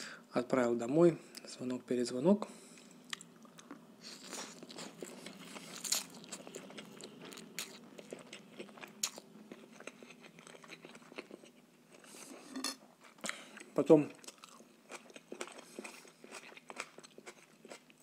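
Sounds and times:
wet chewing and mouth clicks: 3.0s - 12.1s, 13.0s - 18.0s.

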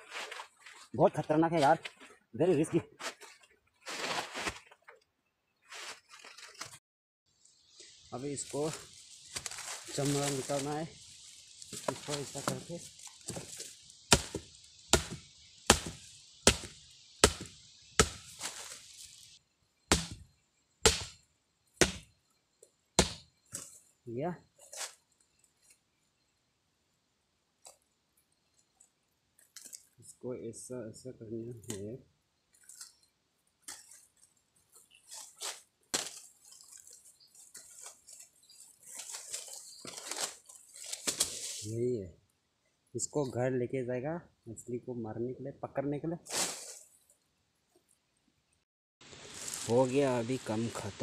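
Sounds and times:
machete chopping into log: 14.1s - 18.7s, 19.9s - 20.2s, 20.8s - 21.2s, 21.8s - 22.1s, 23.0s - 23.2s, 35.9s - 36.2s.

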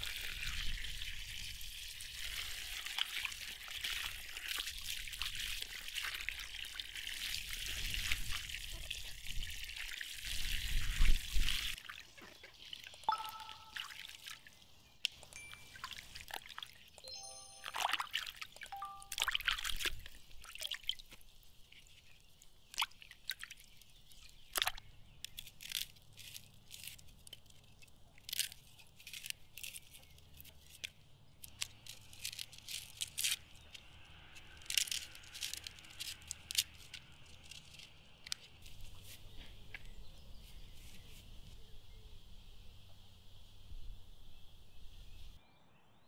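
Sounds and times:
water splashing and dripping: 0.0s - 17.0s, 17.6s - 24.8s
knife peeling onion skin: 25.2s - 38.8s.

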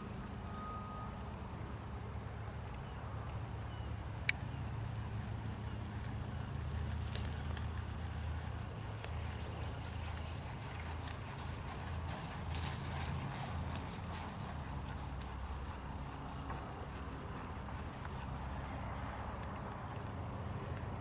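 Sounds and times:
horse hoofbeats on grass: 6.8s - 19.7s.

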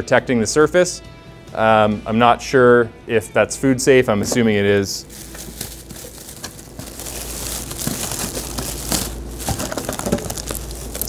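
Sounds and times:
plastic wrapping crinkling: 5.0s - 11.0s.

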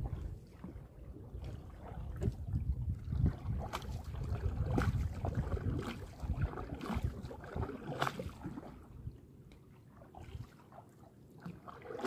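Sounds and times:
wind rumble on microphone: 0.0s - 9.2s
water sloshing against hull: 0.0s - 12.0s.

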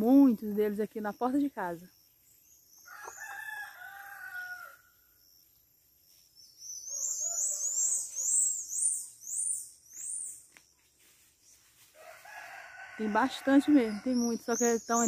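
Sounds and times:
rooster crowing: 2.8s - 5.0s, 6.9s - 8.4s, 12.0s - 14.2s
high whistled bird calls: 6.4s - 10.5s.

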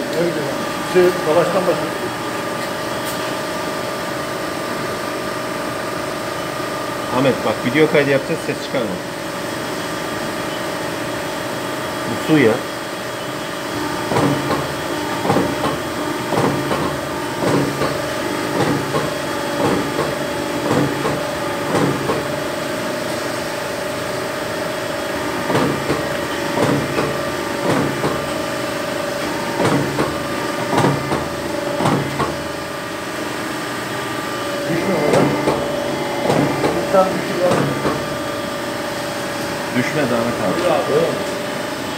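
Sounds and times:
hydraulic pump motor hum: 0.0s - 41.9s
hydraulic press double knock: 14.0s - 22.4s, 25.4s - 28.4s, 29.3s - 32.6s, 35.0s - 38.2s.

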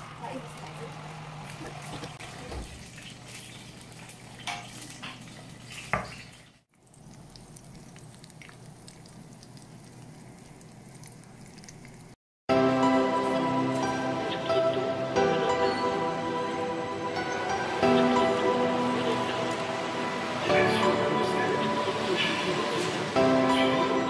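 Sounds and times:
bone marrow sizzling faintly: 0.6s - 12.2s.

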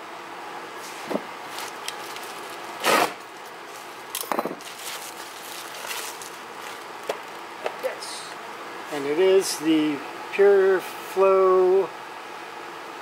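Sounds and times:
rustle or scrape: 4.5s - 6.9s.

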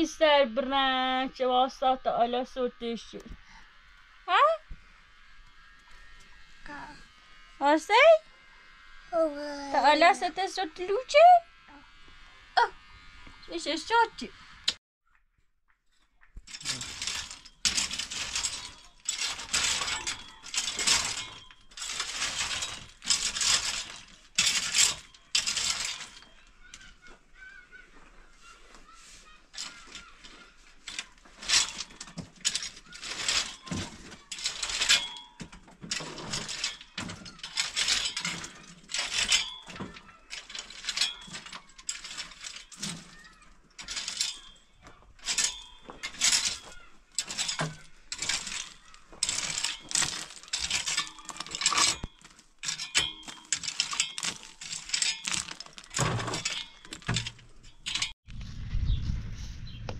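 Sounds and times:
metallic clattering and scraping: 9.8s - 11.4s, 16.5s - 58.6s.

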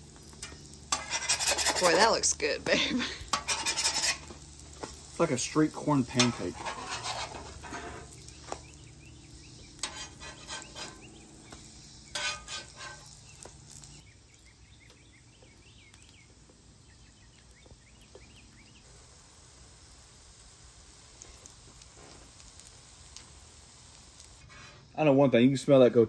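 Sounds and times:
fritters sizzling in oil: 0.0s - 25.0s
metal spatula scraping griddle: 0.3s - 8.3s, 9.5s - 13.9s, 24.4s - 25.0s.

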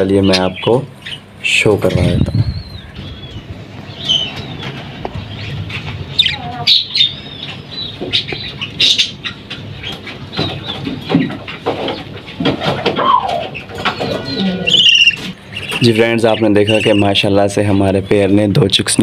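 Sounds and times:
budgerigars chirping: 0.0s - 18.5s.

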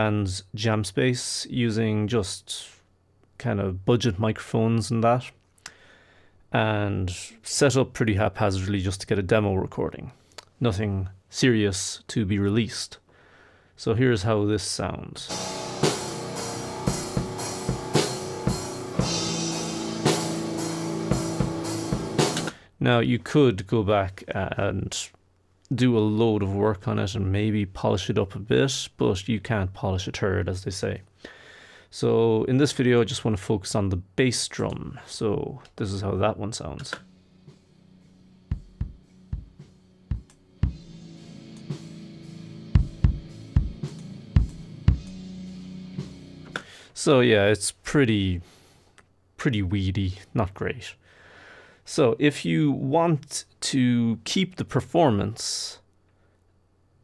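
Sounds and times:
faint snare and cymbals: 15.2s - 22.6s, 36.5s - 47.2s
sustained pitched notes: 15.3s - 22.5s, 36.2s - 46.6s
cymbals: 15.3s - 22.6s
drum kit hits: 15.3s - 22.6s, 36.9s - 46.8s.

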